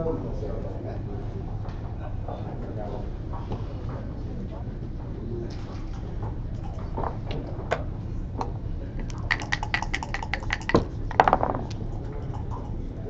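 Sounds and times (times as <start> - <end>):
dice clattering on board: 9.0 - 11.8
dice rattling in a cup: 9.0 - 11.8
game pieces clicking on board: 9.0 - 11.8.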